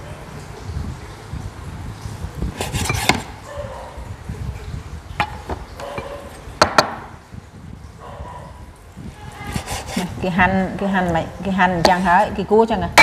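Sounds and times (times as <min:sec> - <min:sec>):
knife knocking on wooden board: 0:02.6 - 0:03.3, 0:05.2 - 0:07.1
knife slicing fish: 0:02.6 - 0:03.3, 0:09.5 - 0:10.1.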